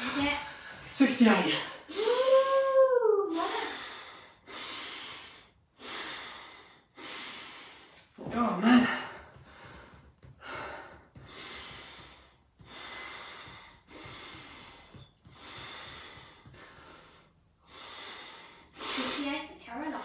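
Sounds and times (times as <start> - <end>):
man breathing heavily: 3.3 - 20.0.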